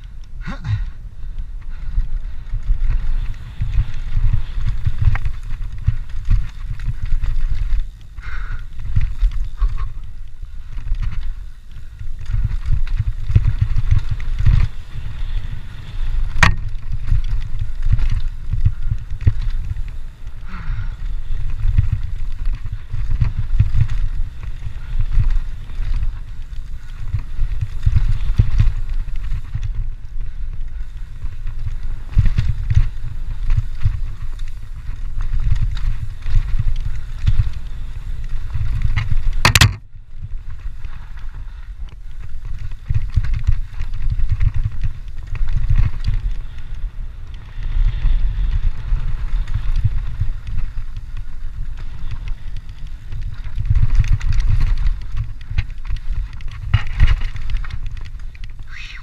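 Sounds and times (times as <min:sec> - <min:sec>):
bike tyres rumbling on dirt: 0:00.0 - 0:59.0
wind on microphone: 0:00.0 - 0:59.0
bike rattles and knocks: 0:01.6 - 0:58.6.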